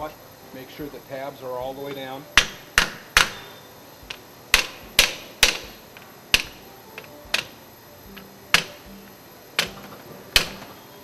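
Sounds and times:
rubber mallet knocking on steel: 2.4s - 6.6s, 8.5s - 9.0s, 9.6s - 10.7s.

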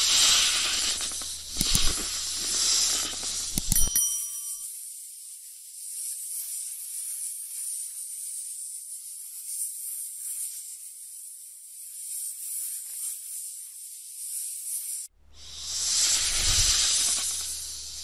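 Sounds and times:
snake hissing: 0.0s - 3.8s, 15.3s - 18.0s.

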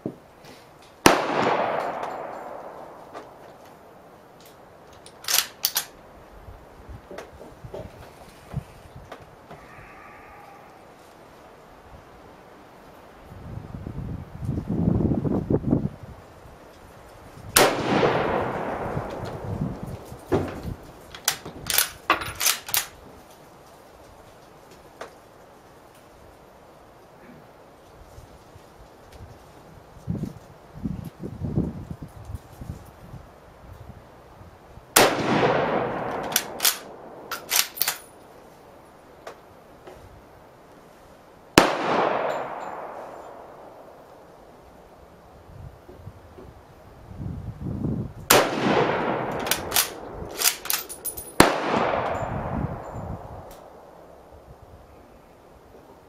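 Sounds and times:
rifle shot with echo: 1.0s - 3.5s, 17.6s - 19.4s, 35.0s - 38.0s, 41.6s - 44.0s, 48.3s - 54.1s
rifle bolt clicking: 5.0s - 5.9s, 36.1s - 38.1s, 49.3s - 51.2s.

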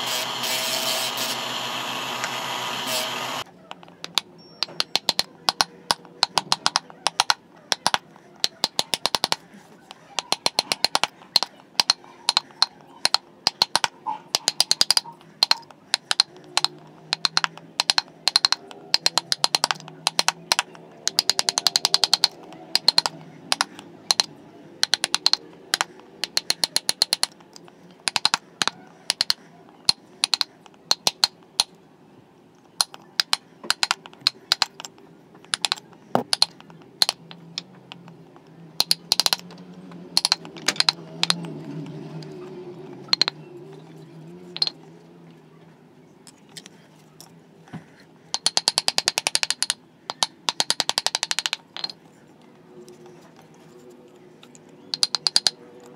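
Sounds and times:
mallet tapping chisel: 40.2s - 41.5s, 54.9s - 55.6s.

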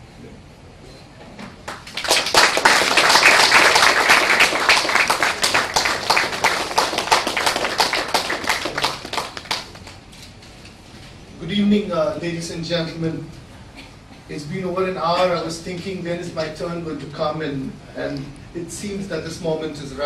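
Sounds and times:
audience applauding: 1.6s - 10.1s.

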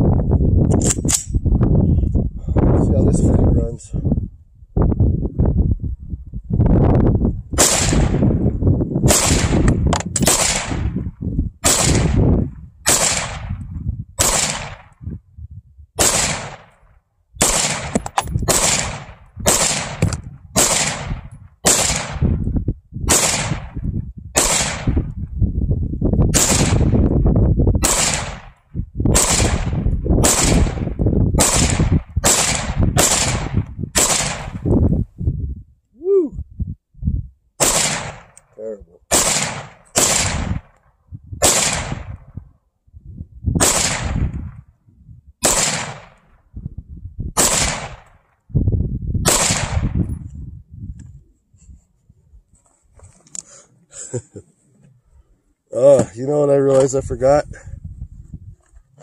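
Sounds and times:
rifle shots: 7.6s - 8.4s, 9.1s - 11.0s, 11.6s - 13.6s, 14.2s - 15.0s, 16.0s - 16.8s, 17.4s - 22.4s, 23.1s - 23.8s, 24.4s - 25.1s, 26.3s - 27.0s, 27.8s - 34.7s, 37.6s - 38.4s, 39.1s - 40.8s, 41.4s - 42.3s, 43.6s - 44.6s, 45.4s - 46.4s, 47.4s - 48.3s, 49.2s - 50.1s.

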